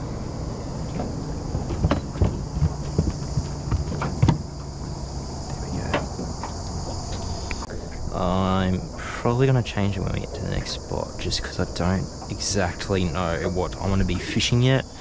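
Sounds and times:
high insect buzz: 0.0s - 15.0s
net frame bumping metal hull: 0.8s - 5.1s
landing net knocking on boat deck: 1.0s - 4.7s.

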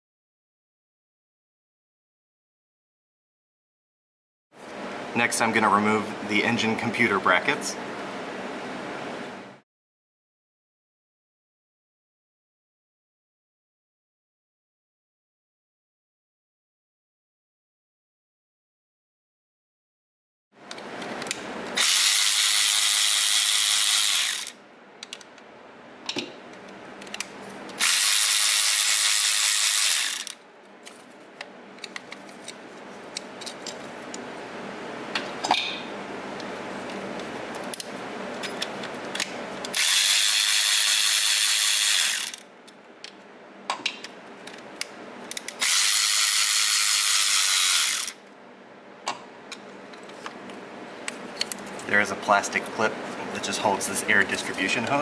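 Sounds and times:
electric ratchet running: 21.8s - 24.6s, 27.8s - 30.4s, 39.7s - 42.5s, 45.4s - 48.2s.

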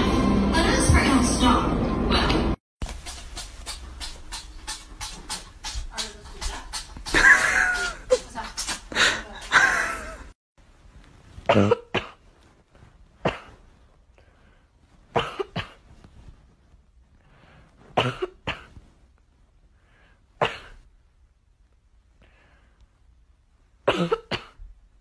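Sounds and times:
person coughing: 11.5s - 12.2s, 13.2s - 13.6s, 15.2s - 15.8s, 18.0s - 18.8s, 20.4s - 20.8s, 23.8s - 24.6s.

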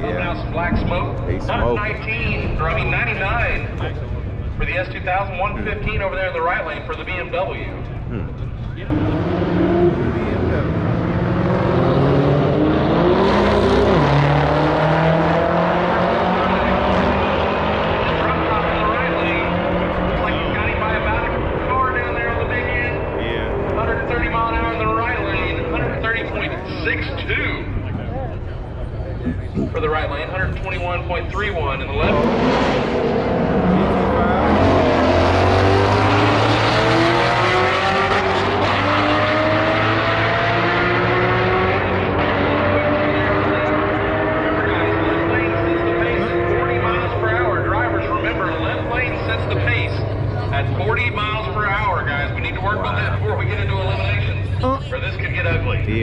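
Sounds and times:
race car engines running: 0.0s - 56.0s.

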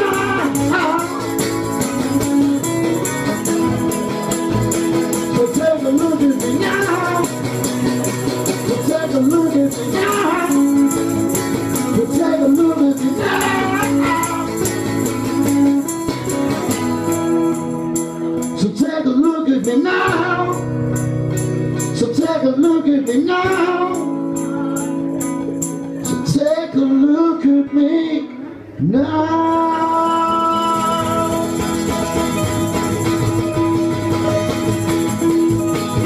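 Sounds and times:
man singing: 0.0s - 1.6s, 5.1s - 15.9s, 18.4s - 20.8s, 21.9s - 31.9s
strummed acoustic guitars: 0.0s - 36.0s.

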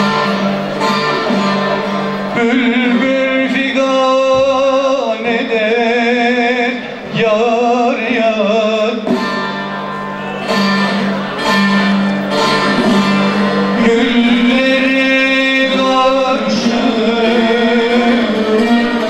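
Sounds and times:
plucked long-necked lute: 0.0s - 19.0s
man singing folk style: 1.7s - 9.5s, 12.5s - 19.0s.

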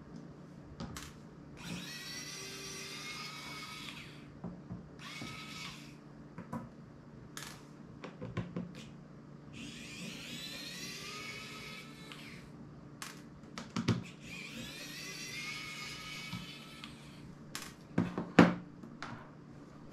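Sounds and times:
electric screwdriver motor whining: 1.6s - 4.2s, 5.0s - 6.0s, 9.6s - 12.5s, 14.0s - 17.2s.

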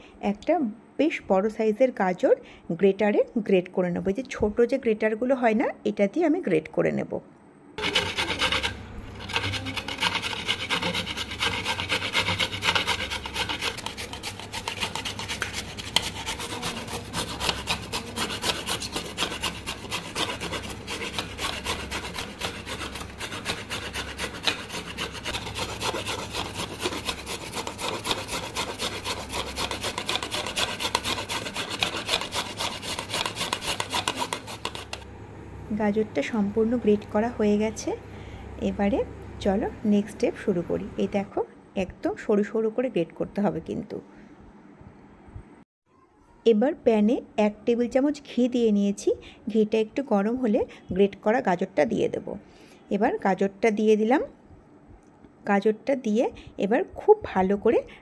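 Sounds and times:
carrot grating on metal grater: 7.8s - 35.0s.

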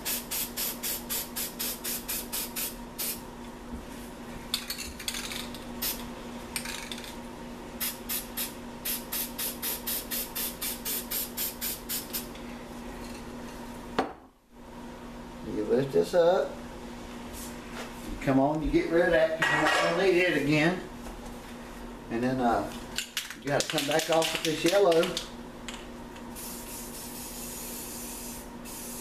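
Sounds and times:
spray paint can spraying: 0.0s - 3.2s, 7.8s - 12.3s, 26.4s - 29.0s.

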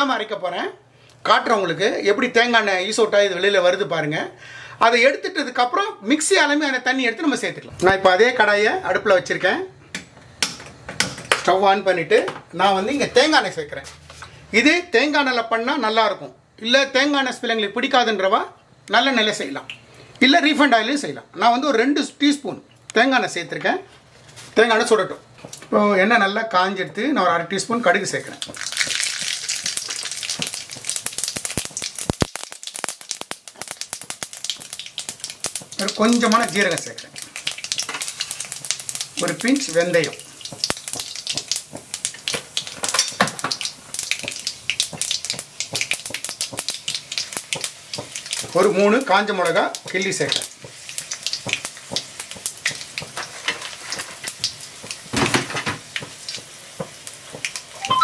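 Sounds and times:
seeds spluttering in hot oil: 27.8s - 57.9s.

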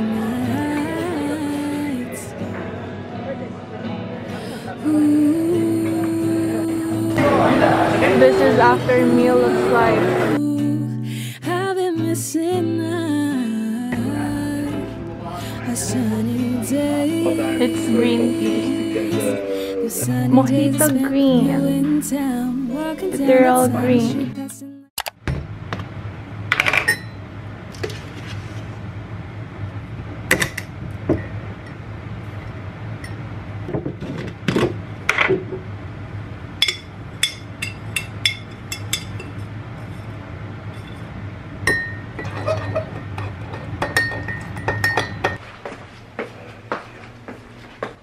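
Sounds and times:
steady low hum: 12.7s - 24.7s
spoon clinking against mug: 36.6s - 39.4s, 43.8s - 45.4s.

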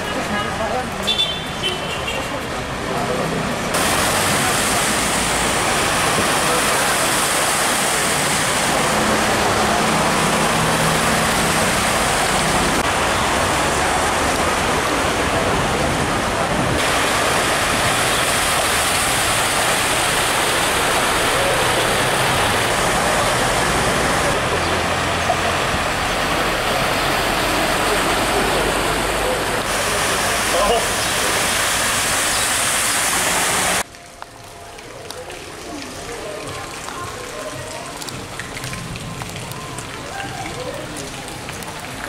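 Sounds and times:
rushing floodwater: 0.0s - 42.0s
tyres splashing through water: 0.0s - 42.0s
car engines running: 2.6s - 33.8s.

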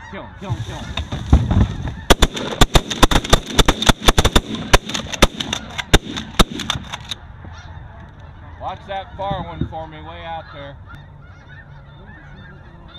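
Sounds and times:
shotgun shots: 2.0s - 7.2s.

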